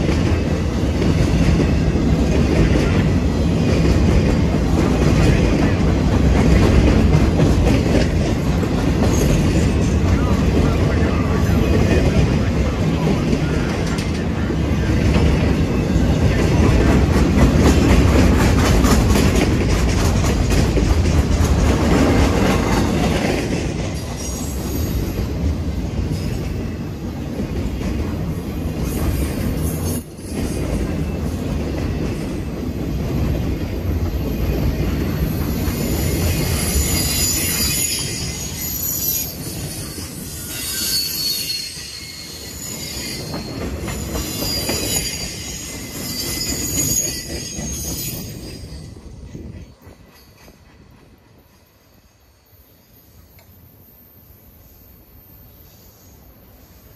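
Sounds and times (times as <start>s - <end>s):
train wheels rumbling on rails: 0.0s - 52.5s
wheel flanges squealing: 35.2s - 49.0s.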